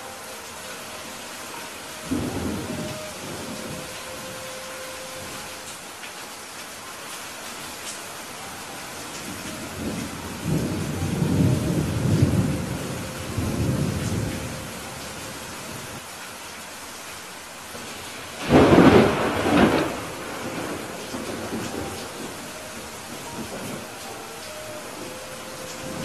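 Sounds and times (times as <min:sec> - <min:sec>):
steady rain: 0:00.0 - 0:26.0
thunder rumbling: 0:02.0 - 0:04.5, 0:09.3 - 0:16.0, 0:18.4 - 0:26.0
sharp thunderclap: 0:18.4 - 0:22.2.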